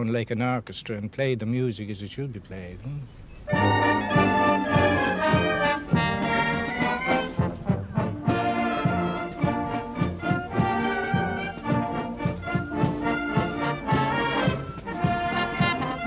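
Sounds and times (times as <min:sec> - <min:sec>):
brass band playing: 0:03.5 - 0:16.0.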